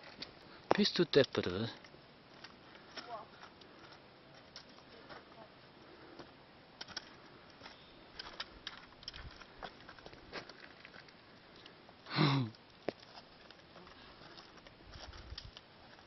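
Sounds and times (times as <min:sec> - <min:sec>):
climbing gear clicking on rock: 0:06.8 - 0:11.8, 0:12.4 - 0:16.0.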